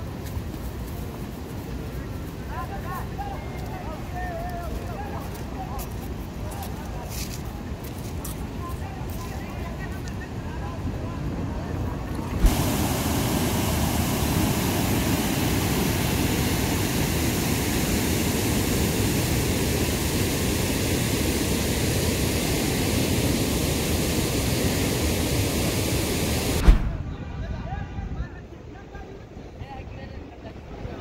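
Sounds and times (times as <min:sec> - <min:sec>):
river water rushing: 0:11.5 - 0:26.7.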